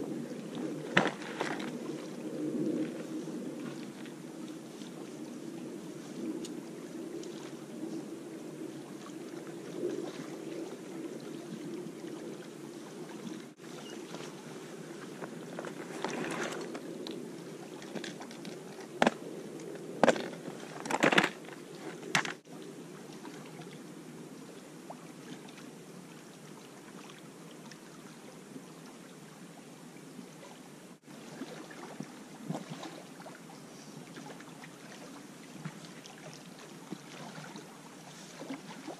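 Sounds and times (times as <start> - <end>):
small waves lapping on rocks: 0.2 - 2.2, 9.0 - 19.2
plastic tackle box rattling: 0.9 - 1.7, 15.5 - 16.8, 20.0 - 22.4.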